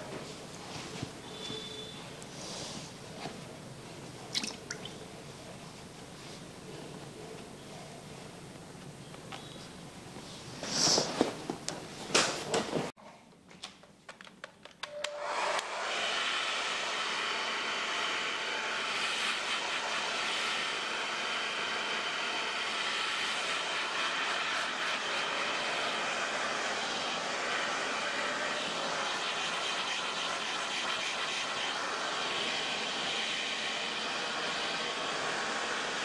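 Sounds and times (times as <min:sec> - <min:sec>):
hair dryer blowing: 0:14.9 - 0:36.0.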